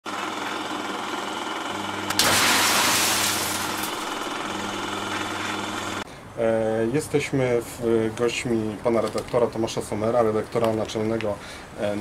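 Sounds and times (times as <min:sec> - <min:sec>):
noisy drone with low hum: 0:01.6 - 0:08.8.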